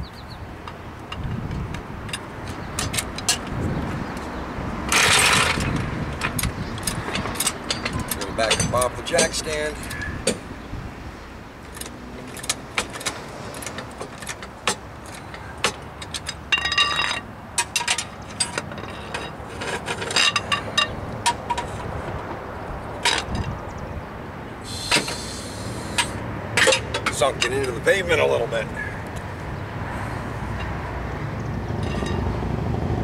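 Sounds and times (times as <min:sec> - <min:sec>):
floor jack clicking and clanking: 0:04.9 - 0:09.4
jack stand being worked loose: 0:11.6 - 0:21.9, 0:24.7 - 0:27.8.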